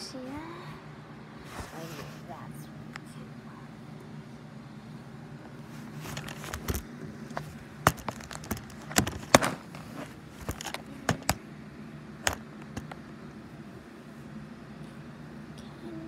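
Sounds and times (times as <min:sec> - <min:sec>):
low steady hum: 0:00.0 - 0:16.0
phone handling clicks and knocks: 0:06.1 - 0:09.7, 0:10.4 - 0:11.4, 0:12.2 - 0:13.0.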